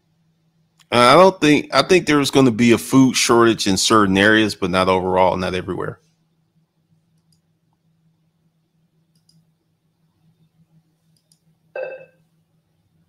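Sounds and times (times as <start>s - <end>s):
low steady hum: 0.0s - 13.0s
computer mouse clicks: 9.1s - 9.4s, 11.1s - 11.5s.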